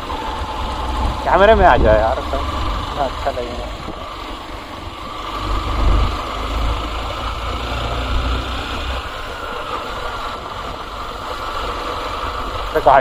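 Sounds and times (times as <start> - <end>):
wind on microphone: 0.0 - 2.9
motorcycle engine running: 0.0 - 13.0.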